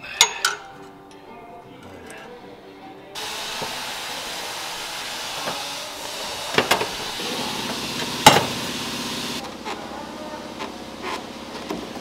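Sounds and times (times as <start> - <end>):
steady hiss: 3.2 - 9.4.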